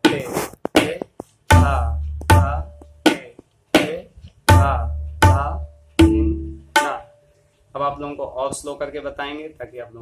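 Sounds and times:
tabla strokes: 0:00.0 - 0:07.4
deep bass drum tone: 0:01.5 - 0:03.1, 0:04.5 - 0:07.0.

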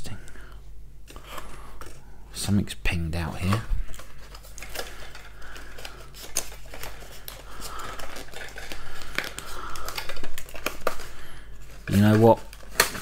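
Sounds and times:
cardboard rustling and crinkling: 0:03.2 - 0:13.0.

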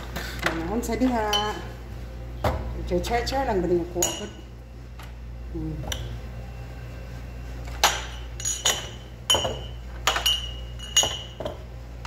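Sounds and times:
low steady hum: 0:00.0 - 0:12.0
glass cups clinking on metal tray: 0:07.8 - 0:11.6.

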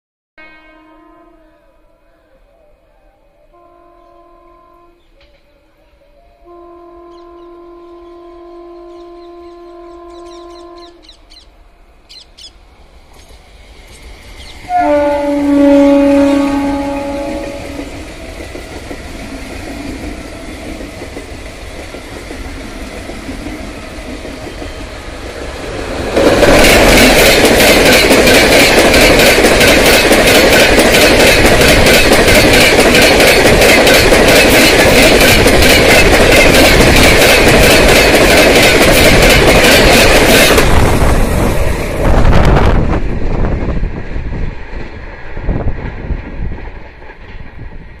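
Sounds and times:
train passing at speed: 0:00.4 - 0:48.0
wheels clacking over rail joints: 0:17.6 - 0:41.7.

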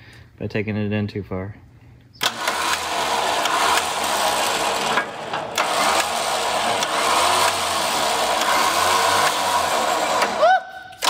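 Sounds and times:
electric winch reeling in rope: 0:02.2 - 0:10.6.

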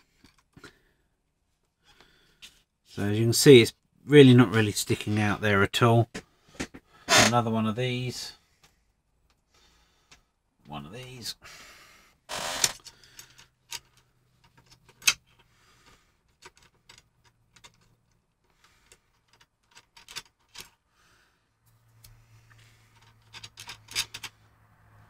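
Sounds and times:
metal nuts and washers clinking: 0:22.8 - 0:24.4.

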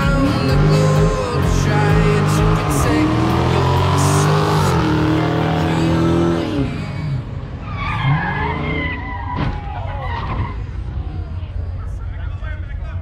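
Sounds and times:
car engines accelerating: 0:00.0 - 0:13.0
tyres squealing: 0:01.6 - 0:10.7.

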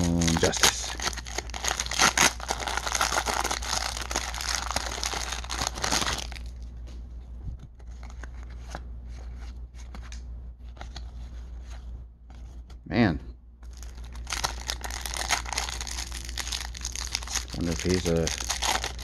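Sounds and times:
foil wrapper tearing and crinkling: 0:00.0 - 0:06.5, 0:13.7 - 0:19.0.

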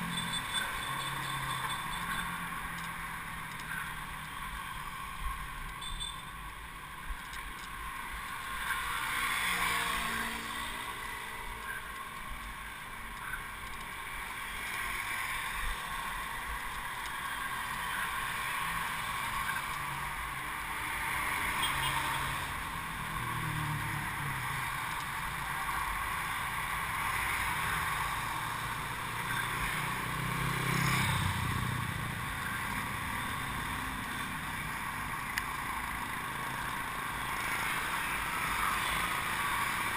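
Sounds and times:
passing motor vehicle engines: 0:00.0 - 0:39.9
wind and road noise: 0:00.0 - 0:39.9.

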